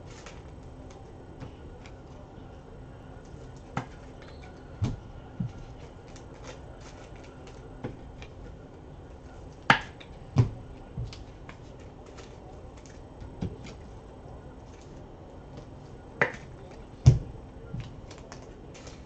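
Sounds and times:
cards clicking and tapping: 3.2s - 8.4s, 9.5s - 13.9s, 14.7s - 19.0s.

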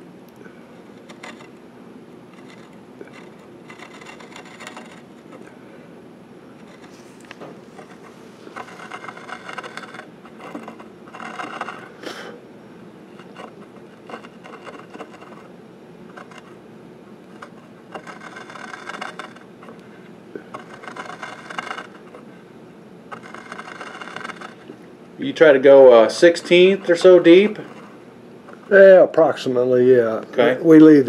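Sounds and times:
small saw scraping wood: 0.8s - 1.6s, 2.3s - 5.5s, 6.6s - 12.3s, 13.1s - 15.5s, 16.1s - 16.6s, 17.2s - 22.5s, 23.1s - 29.1s.

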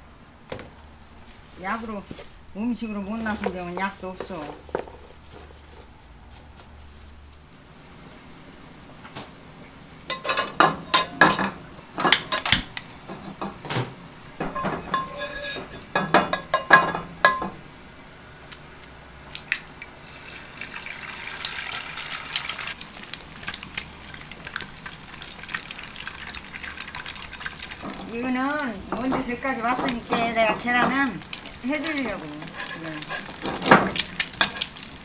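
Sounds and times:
metal spatula scraping pan: 14.5s - 16.0s, 32.0s - 34.8s
eggs sizzling: 18.5s - 35.0s.

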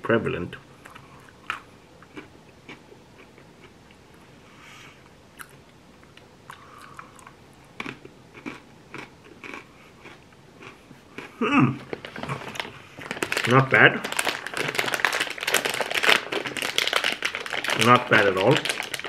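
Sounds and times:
crunchy pretzel chewing: 0.8s - 3.8s, 5.4s - 19.0s.

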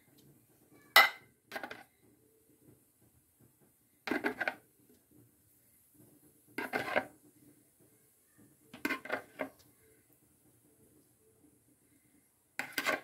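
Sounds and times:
spoon scraping dishes: 4.1s - 4.6s, 6.6s - 7.1s, 8.8s - 9.6s, 12.6s - 13.0s.

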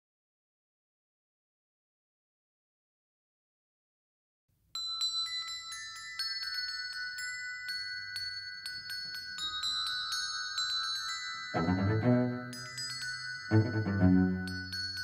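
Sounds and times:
brass bells ringing melody: 11.0s - 15.0s.

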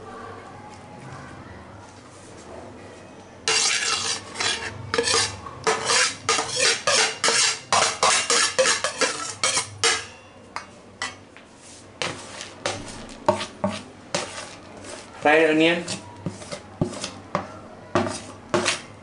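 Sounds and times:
utensil scraping rice off plate: 3.5s - 10.0s, 11.6s - 15.2s.

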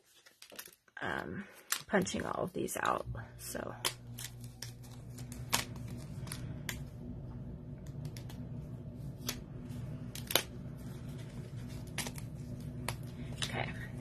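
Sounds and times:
steady low hum: 1.1s - 14.0s
cardstock snapping: 3.7s - 6.8s, 10.1s - 10.5s.

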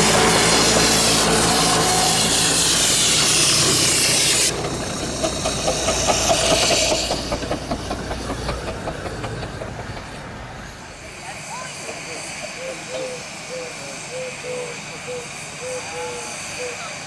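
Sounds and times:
rhythmic beats of running train: 0.0s - 17.0s
steam locomotive hissing steam: 0.0s - 17.0s.

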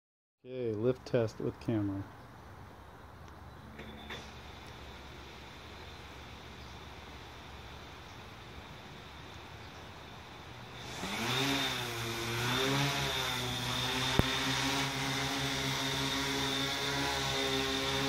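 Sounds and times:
drone motors buzzing: 10.6s - 18.0s.

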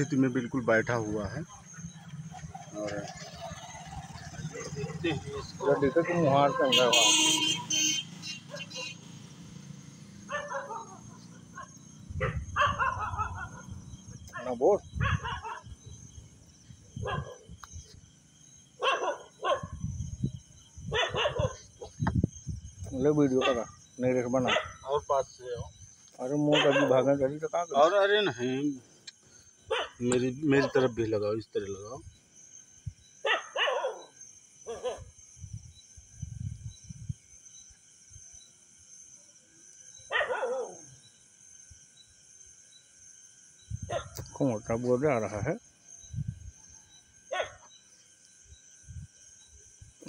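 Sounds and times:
insects chirping: 0.0s - 50.0s
dog barking: 8.5s - 9.0s, 10.3s - 15.7s, 17.0s - 17.4s, 18.8s - 19.8s, 20.9s - 21.6s, 23.4s - 23.7s, 24.4s - 24.8s, 26.5s - 27.1s, 29.7s - 30.0s, 33.2s - 35.1s, 40.1s - 40.9s, 43.9s - 44.2s, 47.3s - 47.7s.

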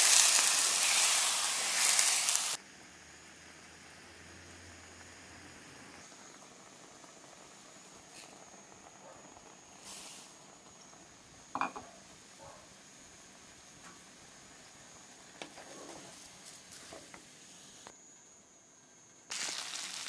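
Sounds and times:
stew simmering in a pot: 0.0s - 17.8s
brief hiss: 9.8s - 10.4s
rice clattering into pot: 19.3s - 20.0s.

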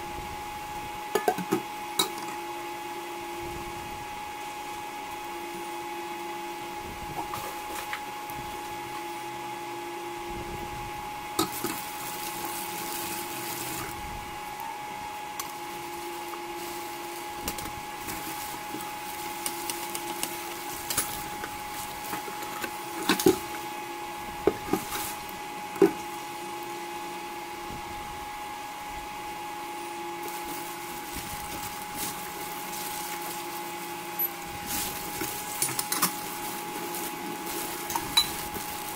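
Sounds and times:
cooktop whine: 0.0s - 38.9s
low cooktop hum: 0.0s - 38.9s
batter sizzling in frying pan: 11.1s - 27.4s.

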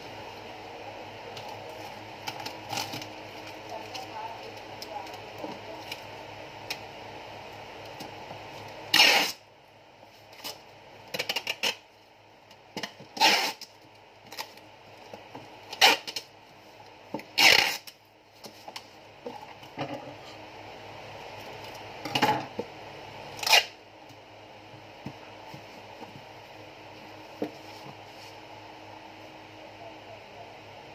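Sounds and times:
packing tape ripping off roll: 8.9s - 9.4s, 11.2s - 11.8s, 12.8s - 14.6s, 15.7s - 16.3s, 17.3s - 18.0s, 23.4s - 23.8s.

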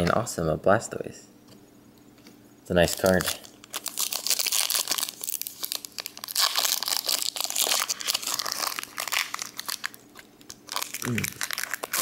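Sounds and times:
wrapper crinkling: 2.8s - 12.0s.

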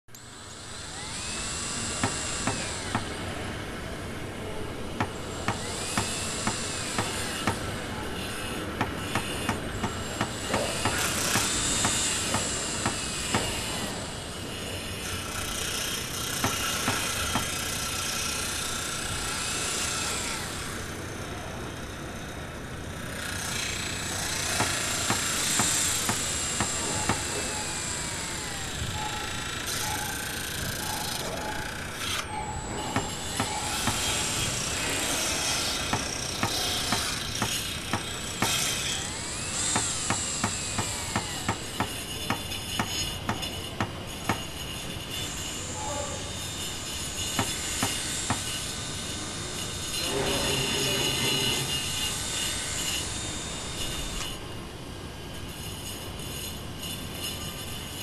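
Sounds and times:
power drill whining: 0.2s - 4.2s, 4.8s - 21.2s, 23.1s - 54.4s
machinery noise: 0.2s - 58.0s
sharp tool impacts: 5.0s - 7.8s, 8.8s - 14.0s, 16.4s - 17.6s, 24.4s - 28.0s, 32.1s - 44.9s, 47.3s - 48.7s.

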